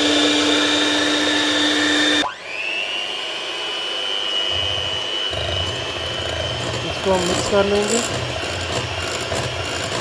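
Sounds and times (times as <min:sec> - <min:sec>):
electric hand mixer whine: 0:00.0 - 0:10.0
food processor running: 0:00.0 - 0:10.0.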